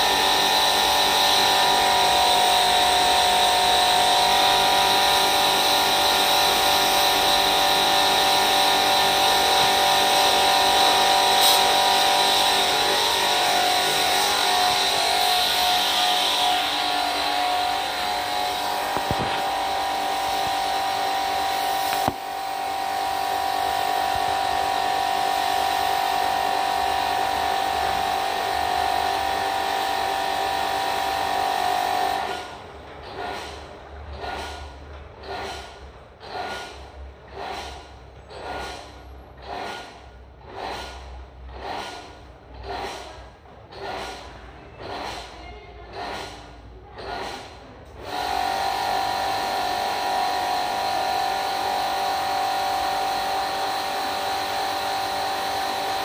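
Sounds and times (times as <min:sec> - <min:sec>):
pressure washer pump running: 0:00.0 - 0:34.6, 0:46.0 - 0:56.0
water spray hiss: 0:11.3 - 0:11.8.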